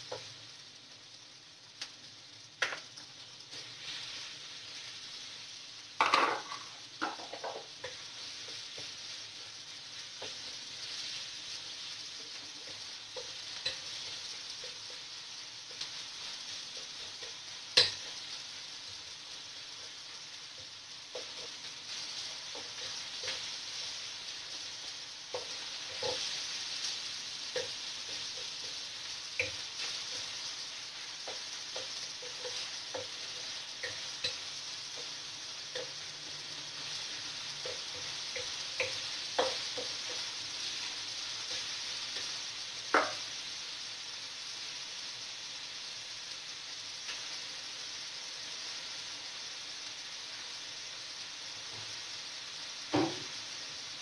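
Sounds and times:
meat sizzling in a wok: 0:00.0 - 0:54.0
wooden spatula scraping a pan: 0:19.8 - 0:43.2
sharp knock: 0:53.0 - 0:53.3.

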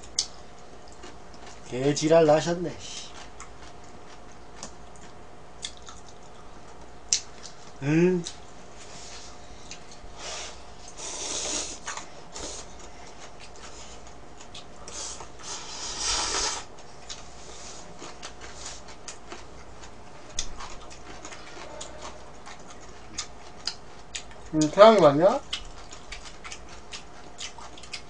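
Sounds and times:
chewing clicks and mouth noises: 0:00.0 - 0:02.0, 0:02.8 - 0:08.6, 0:09.6 - 0:10.1, 0:12.7 - 0:15.4, 0:16.7 - 0:17.3, 0:17.9 - 0:28.0
person slurping noodles: 0:10.2 - 0:11.8, 0:14.9 - 0:16.7.

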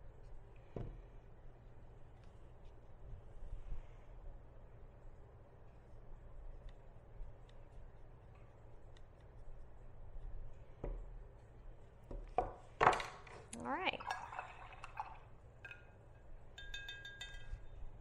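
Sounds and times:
paintbrush knocking on glass jar: 0:16.6 - 0:17.8.

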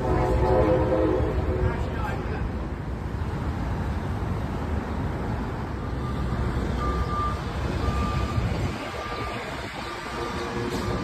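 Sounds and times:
electronic warning beeps: 0:06.0 - 0:11.0.

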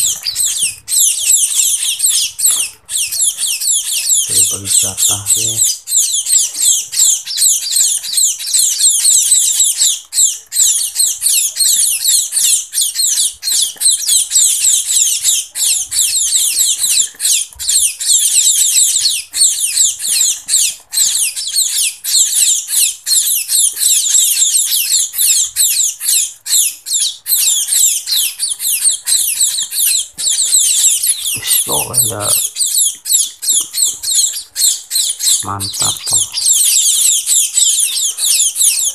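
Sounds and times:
fledglings shrill begging calls: 0:00.0 - 0:38.9.

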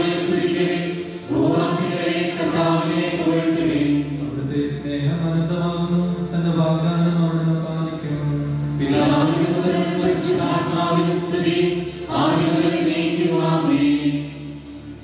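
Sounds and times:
voices singing chant: 0:00.0 - 0:04.2, 0:08.8 - 0:14.5.

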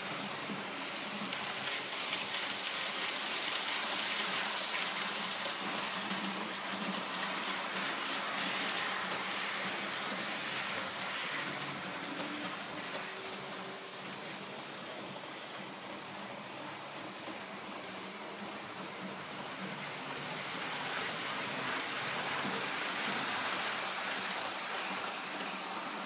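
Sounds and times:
model train wheels on rails: 0:00.0 - 0:26.0.

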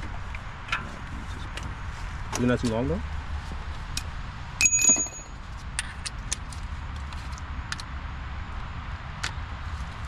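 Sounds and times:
metal tools clinking and clanking: 0:04.6 - 0:05.4
ringing metallic clang: 0:04.6 - 0:05.4.

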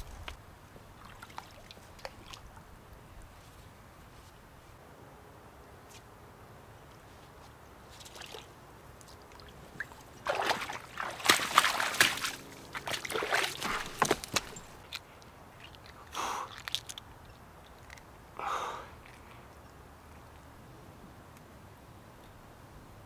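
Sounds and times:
creek water splashing: 0:00.0 - 0:02.8, 0:07.9 - 0:18.0.

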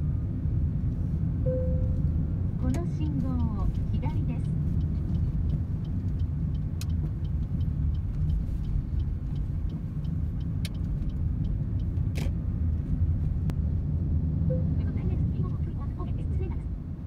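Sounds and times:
car road and engine rumble: 0:00.0 - 0:17.0
light regular ticking: 0:02.6 - 0:12.4.

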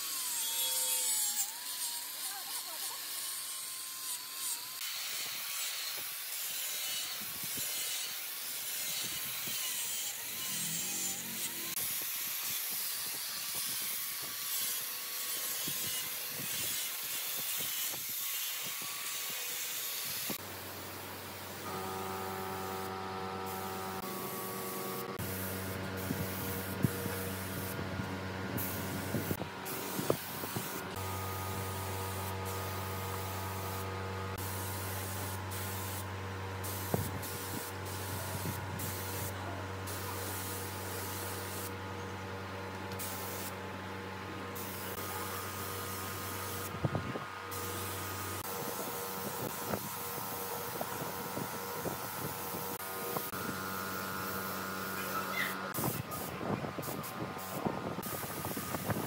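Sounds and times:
angle grinder sanding wood: 0:00.0 - 0:20.4, 0:21.6 - 0:27.8
spray gun hissing: 0:20.0 - 0:27.8, 0:28.6 - 0:33.8, 0:34.4 - 0:39.3, 0:43.0 - 0:43.5, 0:47.5 - 0:59.0.

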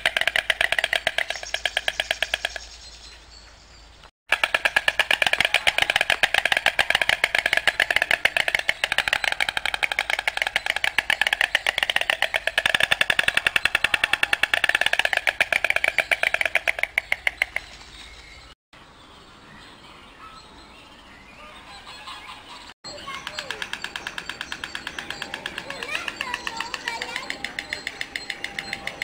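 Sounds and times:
storks clattering bills: 0:00.0 - 0:02.6, 0:04.3 - 0:17.8, 0:22.9 - 0:29.0
faint bird chirps: 0:05.4 - 0:29.0.

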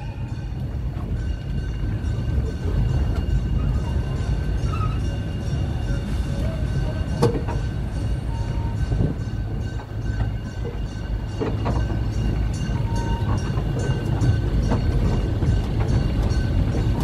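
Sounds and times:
railway carriage rumbling: 0:00.0 - 0:17.0
wheels clicking over rail joints: 0:00.0 - 0:17.0.

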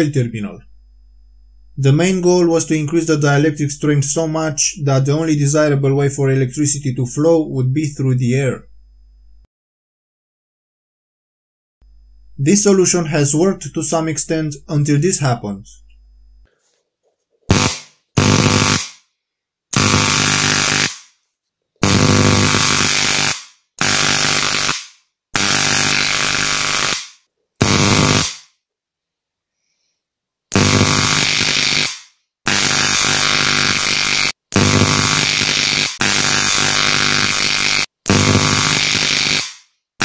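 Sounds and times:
electric arc buzzing: 0:17.5 - 0:19.0, 0:19.7 - 0:21.2, 0:21.8 - 0:28.5, 0:30.5 - 0:39.6.

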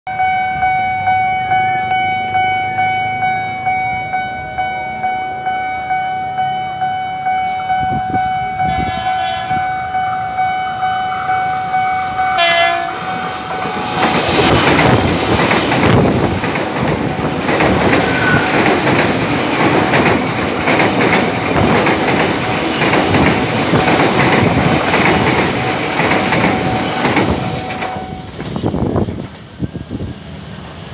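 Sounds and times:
train rumbling past: 0:00.1 - 0:30.9
train horn: 0:06.8 - 0:14.4, 0:18.0 - 0:18.6, 0:26.4 - 0:28.3
level crossing bell ringing: 0:09.5 - 0:13.9
wheels clacking over rail joints: 0:12.7 - 0:29.5.

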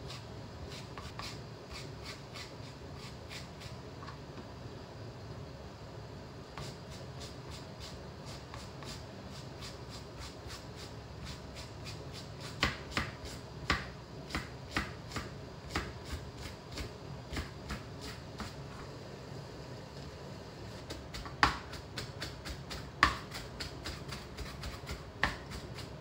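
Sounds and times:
knife chopping on cutting board: 0:11.2 - 0:18.6, 0:20.9 - 0:26.0.

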